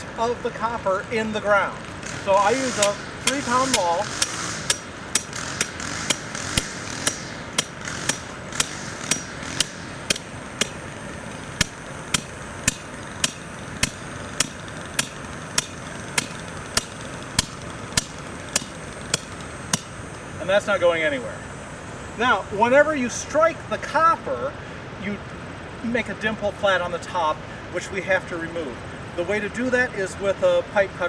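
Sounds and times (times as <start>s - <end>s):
hammer striking metal pipe: 2.8s - 10.8s, 11.6s - 20.0s.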